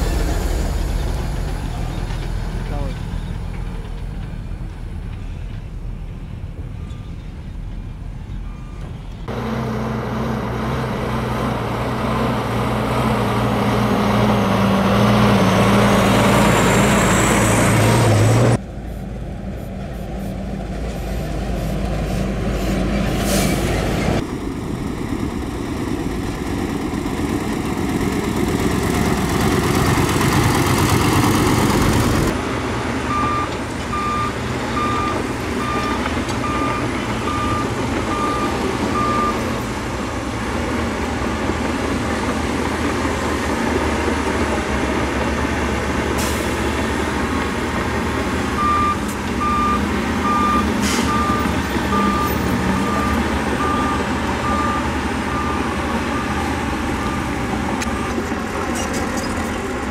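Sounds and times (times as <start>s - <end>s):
diesel truck engine: 0.0s - 59.9s
reversing beeper beeping: 48.6s - 58.3s.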